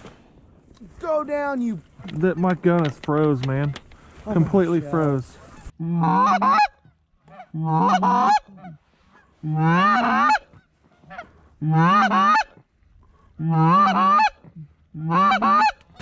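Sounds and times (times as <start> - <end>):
goose call honks: 5.4 - 8.8, 9.4 - 12.6, 13.4 - 15.8.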